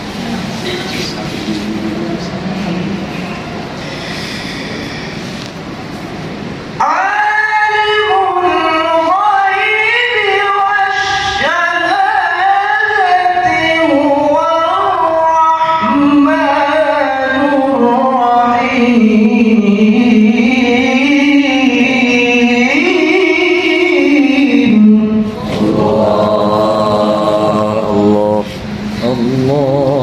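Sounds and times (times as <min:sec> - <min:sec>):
man reciting melodically: 0:06.8 - 0:30.0.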